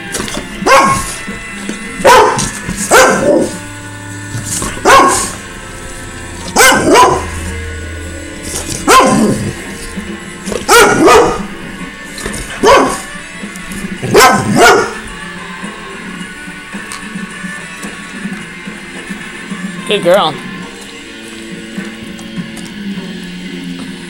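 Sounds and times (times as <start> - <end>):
dog barking: 0.6 - 1.2, 2.0 - 3.6, 4.6 - 5.4, 6.5 - 7.4, 8.8 - 9.6, 10.6 - 11.5, 12.5 - 13.1, 14.0 - 15.0.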